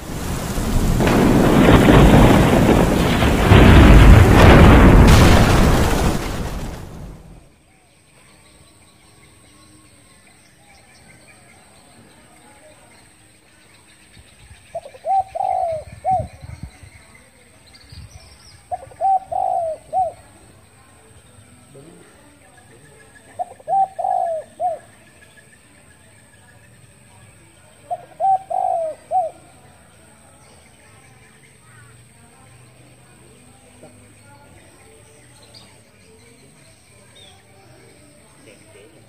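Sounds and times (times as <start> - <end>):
heavy rain: 0.0 - 7.5
thunder: 0.0 - 7.5
dove cooing: 14.8 - 16.3, 18.7 - 20.2, 23.4 - 24.8, 27.9 - 29.4.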